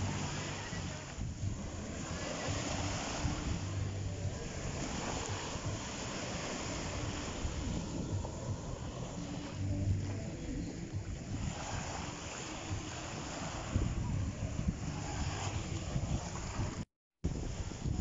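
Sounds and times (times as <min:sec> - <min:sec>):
low hum: 0:00.0 - 0:16.8
small waves washing onto shore: 0:00.0 - 0:18.0
wind buffeting microphone: 0:00.0 - 0:18.0.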